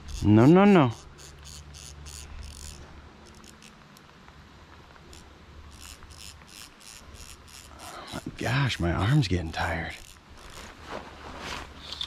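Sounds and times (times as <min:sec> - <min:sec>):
insects chirping: 0:04.9 - 0:10.7.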